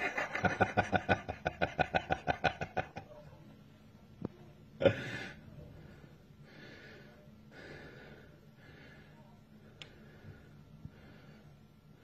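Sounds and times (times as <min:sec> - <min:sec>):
person laughing: 0:00.0 - 0:03.2.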